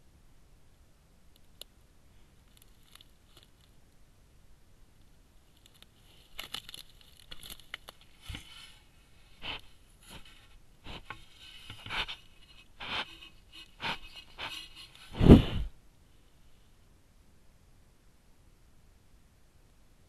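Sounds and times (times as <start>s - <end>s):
animal hide rubbing against camera: 8.2s - 15.7s.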